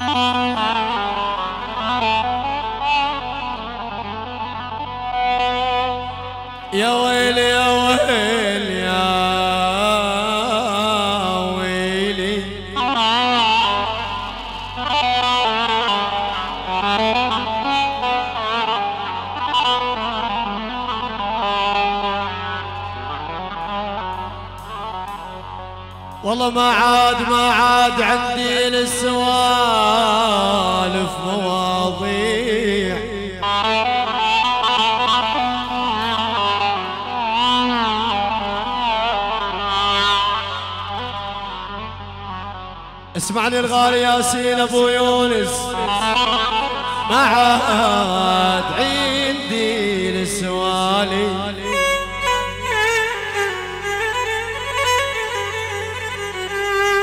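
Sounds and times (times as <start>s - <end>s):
live folk dance music: 44.6s - 57.0s.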